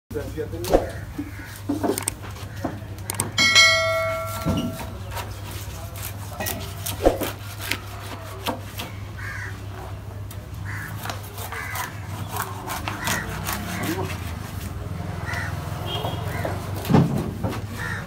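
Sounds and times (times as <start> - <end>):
crows cawing: 0.8 - 2.9, 8.9 - 9.9, 10.6 - 14.2, 15.2 - 16.8, 17.7 - 18.0
knife chopping on wooden block: 6.5 - 7.8.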